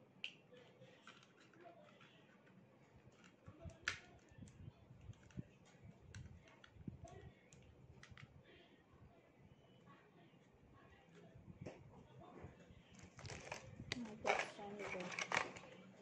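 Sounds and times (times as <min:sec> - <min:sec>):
plastic parts clicking and knocking: 0:00.2 - 0:04.3, 0:05.1 - 0:08.3, 0:13.0 - 0:15.8.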